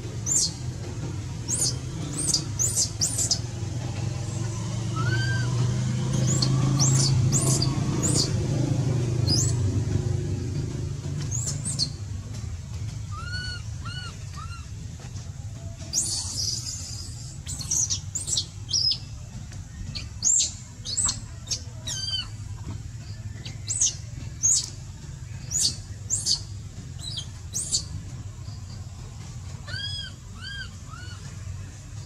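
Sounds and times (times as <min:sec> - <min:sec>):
steady low hum: 0:00.0 - 0:32.0
soft arched animal calls: 0:01.4 - 0:03.6, 0:04.3 - 0:08.4, 0:13.0 - 0:14.8, 0:19.9 - 0:22.6, 0:29.6 - 0:31.6
high-pitched animal chirps: 0:29.6 - 0:31.2.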